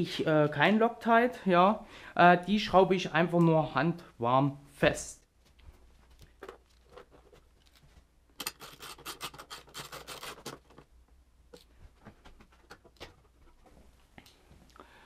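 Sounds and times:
hand tool scratching and clicking: 8.4 - 10.8.

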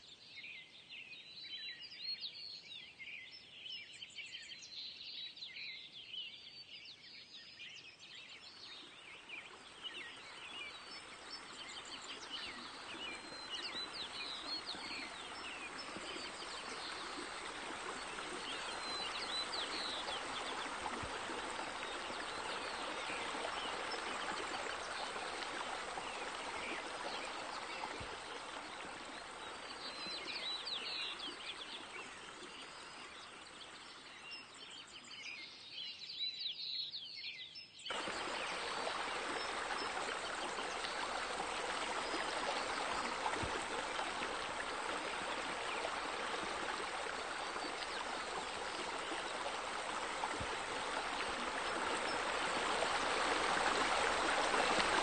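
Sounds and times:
birds chirping: 8.7 - 35.0, 37.9 - 55.0
running splashing water: 9.4 - 33.8, 37.9 - 55.0.

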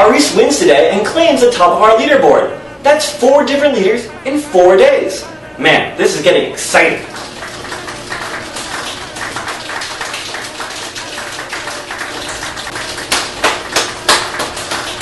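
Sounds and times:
crowd applauding: 7.0 - 15.0
loud single claps: 7.4 - 15.0.

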